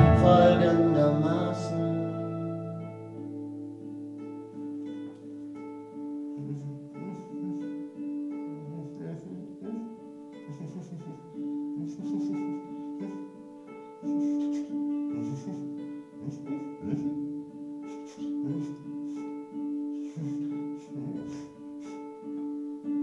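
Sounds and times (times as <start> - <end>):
accordion held note: 0.0 - 3.6
strummed acoustic guitars: 0.0 - 23.0.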